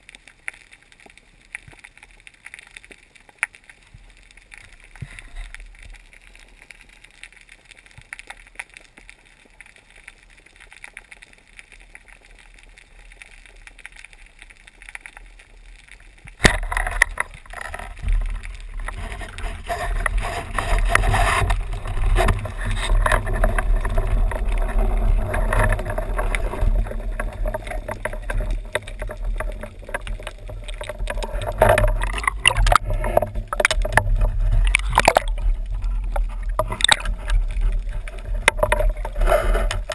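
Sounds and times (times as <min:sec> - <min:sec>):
faint water hiss: 0:00.0 - 0:39.9
water rush and deep rumble: 0:16.4 - 0:39.9.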